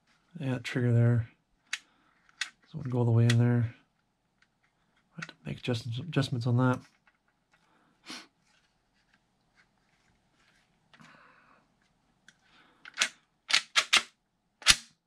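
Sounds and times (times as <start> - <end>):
plastic parts scraping: 1.6 - 3.6, 6.6 - 7.7, 12.2 - 13.9
sharp plastic clicks: 12.3 - 15.0.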